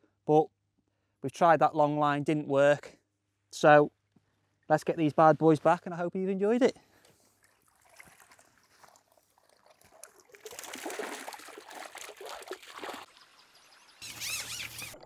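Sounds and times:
faint water drips: 6.8s - 13.6s
water pouring off a net: 7.2s - 13.4s.

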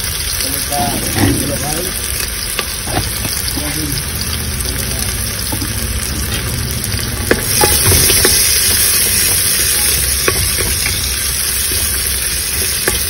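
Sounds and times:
onions sizzling in hot oil: 0.0s - 13.0s
spatula scraping and tapping pot: 1.1s - 3.7s, 7.3s - 11.2s.

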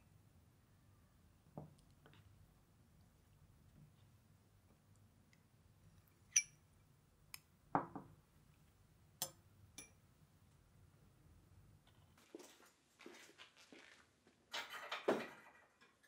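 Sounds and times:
metal spoon clinking against glass: 6.3s - 6.6s.

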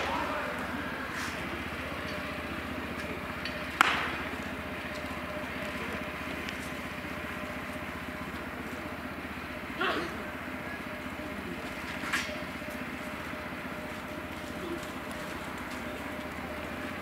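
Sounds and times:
steady background hum: 0.0s - 17.0s
baseball popping into catcher's mitt: 3.8s - 4.3s.

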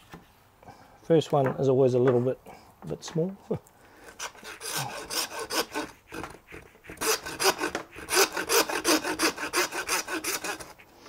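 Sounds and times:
hand saw cutting bone: 4.1s - 10.9s.

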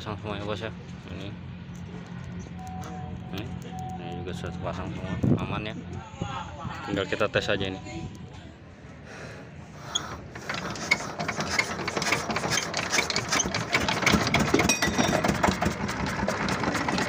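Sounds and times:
diesel engine clattering: 9.7s - 17.0s.

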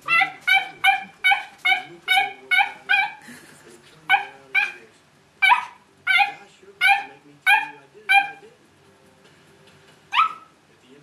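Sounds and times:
squeaky toy squeaks: 0.0s - 3.2s, 5.4s - 8.4s, 10.1s - 10.5s.

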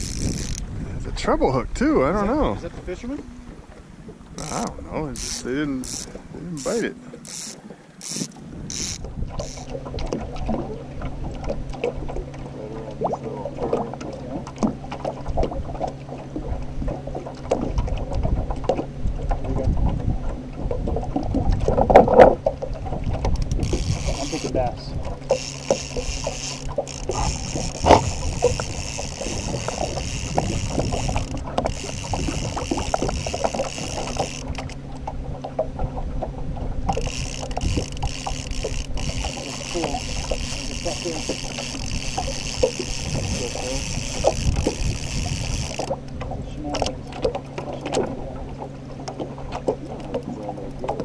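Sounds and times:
fishing reel clicking: 0.0s - 0.6s, 4.4s - 9.8s, 23.3s - 34.8s, 36.9s - 46.0s, 46.7s - 47.0s
outboard motor humming: 0.0s - 51.0s.

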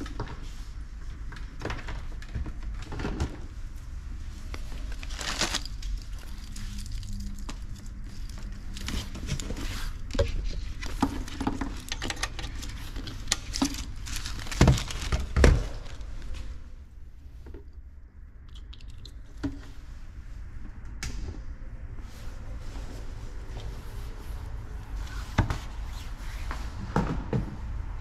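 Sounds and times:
packaging rustling: 4.5s - 16.5s.

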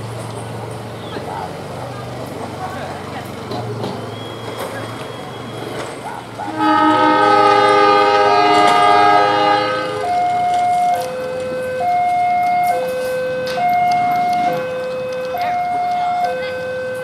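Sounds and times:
locomotive air horn: 6.4s - 12.0s, 12.6s - 15.7s
two-note warning tone: 6.5s - 17.0s.

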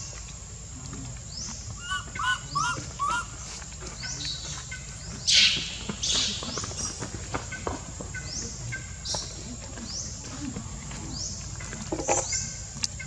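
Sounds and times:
warbling bird calls: 1.4s - 7.0s
short rising bird chirp: 1.8s - 3.3s
harsh bird cry: 1.8s - 3.5s.

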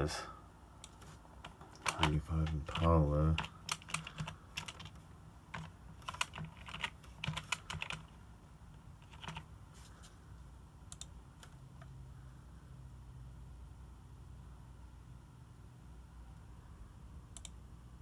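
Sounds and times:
keyboard typing: 0.8s - 8.2s, 9.0s - 9.5s.

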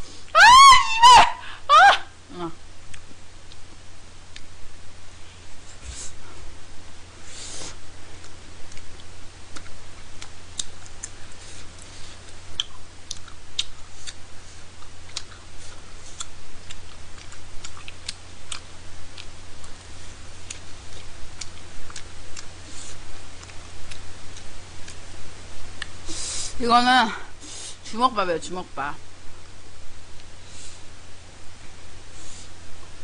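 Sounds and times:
wet chewing sounds: 8.2s - 25.0s.

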